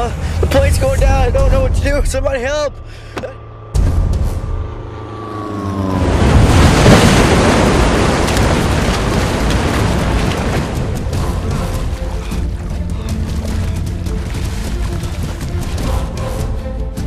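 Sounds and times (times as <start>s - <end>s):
person splashing in water: 11.5s - 15.9s.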